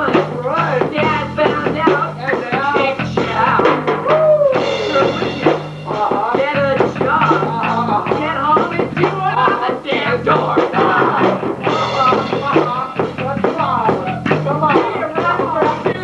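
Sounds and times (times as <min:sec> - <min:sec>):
man rapping fast: 0:00.0 - 0:03.8, 0:04.5 - 0:16.0
drum beat: 0:00.0 - 0:16.0
repeating bass line: 0:10.1 - 0:16.0.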